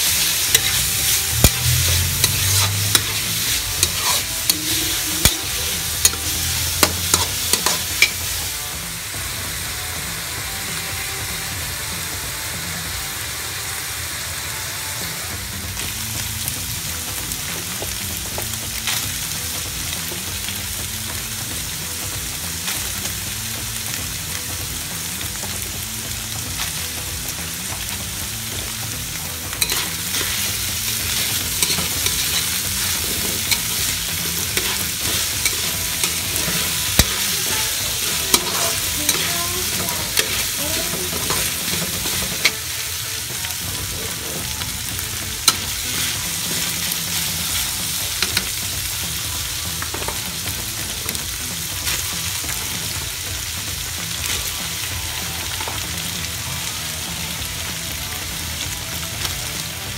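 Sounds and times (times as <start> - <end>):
spatula scraping metal pan: 0.0 - 8.3, 29.6 - 42.6
food sizzling in a wok: 0.0 - 59.9.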